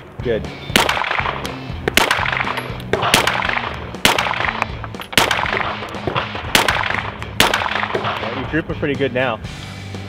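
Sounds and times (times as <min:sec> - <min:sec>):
background music: 0:00.0 - 0:10.0
pistol shots: 0:00.7 - 0:08.6.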